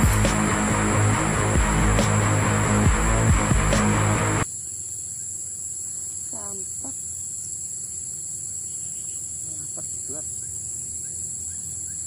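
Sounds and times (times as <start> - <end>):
insects shrilling: 4.4 - 12.0
faint calls: 6.0 - 7.4, 8.6 - 12.0.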